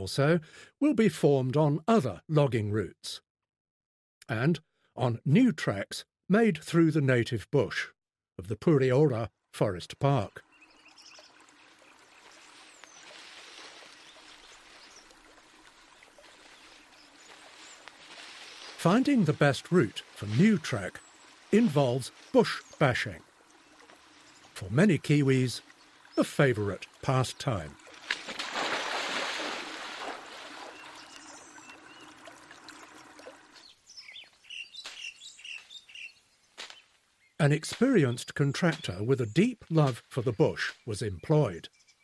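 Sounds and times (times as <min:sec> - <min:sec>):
stream flowing: 0:10.2 - 0:34.2
person wading through stream: 0:10.5 - 0:33.7.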